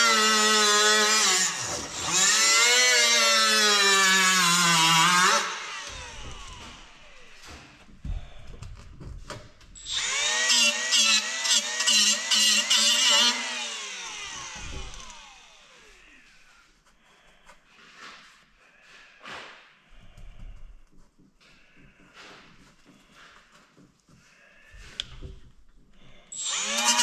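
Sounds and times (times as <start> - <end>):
die grinder whining: 0.0 - 7.6, 9.8 - 16.3, 26.3 - 27.0.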